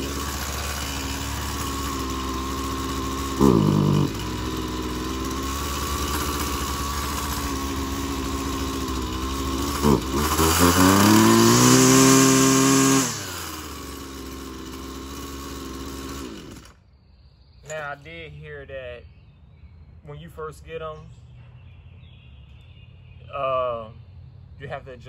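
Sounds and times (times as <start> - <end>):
string trimmer engine revving: 0.0 - 16.8.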